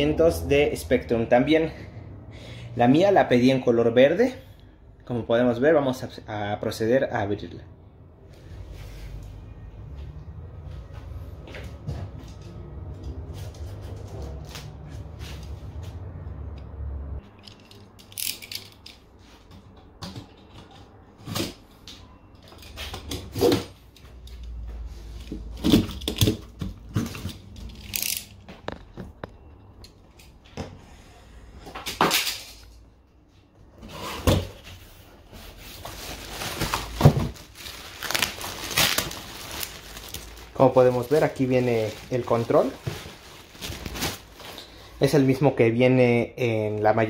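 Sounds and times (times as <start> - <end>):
plastic packaging rustling: 34.8 - 45.2.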